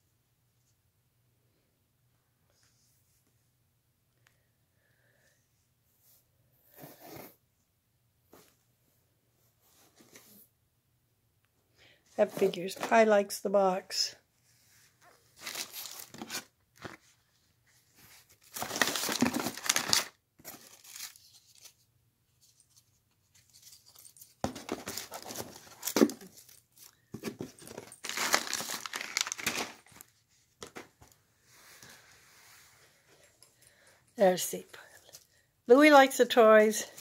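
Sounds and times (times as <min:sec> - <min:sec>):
cardboard and plastic crinkling: 0:15.4 - 0:17.1, 0:17.9 - 0:21.8, 0:22.6 - 0:31.2.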